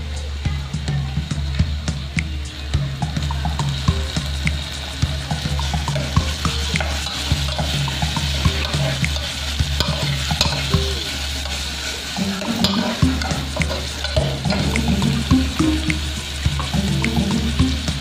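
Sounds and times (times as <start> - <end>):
food sizzling: 0.0 - 18.0.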